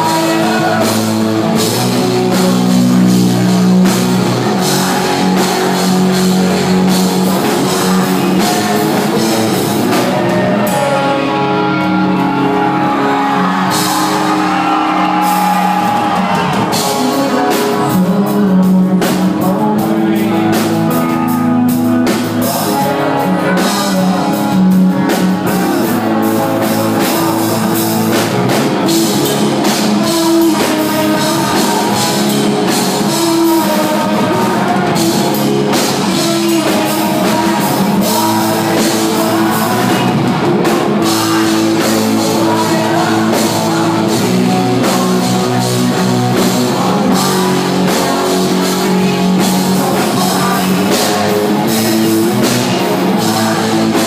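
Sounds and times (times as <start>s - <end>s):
drum kit: 0.0s - 54.0s
electric guitar: 0.0s - 54.0s
live rock band playing: 0.0s - 54.0s
person singing: 0.0s - 54.0s.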